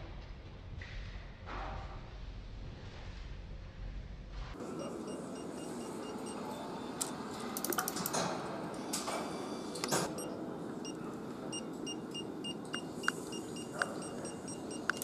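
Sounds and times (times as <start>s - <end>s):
steady factory hum: 0.1s - 15.0s
short electronic beeps: 4.8s - 7.1s, 9.3s - 15.0s.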